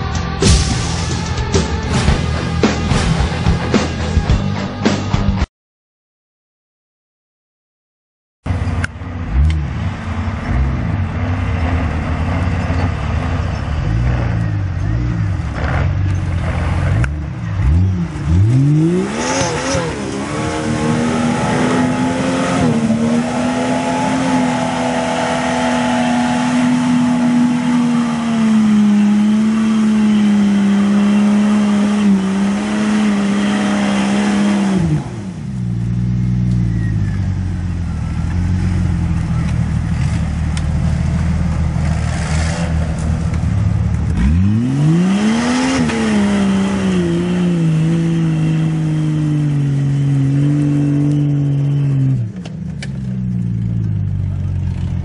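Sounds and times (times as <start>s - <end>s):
car engine revving hard: 8.5s - 36.1s, 41.7s - 52.3s.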